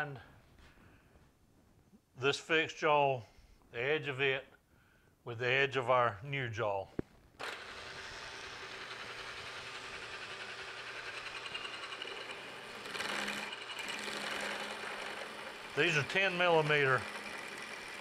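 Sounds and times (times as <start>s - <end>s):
drill bit drilling metal: 7.4s - 18.0s
milling machine whir: 7.4s - 18.0s.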